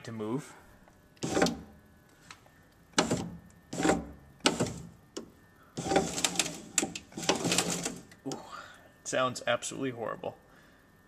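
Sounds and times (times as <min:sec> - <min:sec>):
window regulator crunching and clicking: 0:01.2 - 0:01.7, 0:03.0 - 0:04.9, 0:05.8 - 0:08.2
power window motor straining: 0:01.2 - 0:01.8, 0:03.0 - 0:04.9, 0:05.8 - 0:08.2.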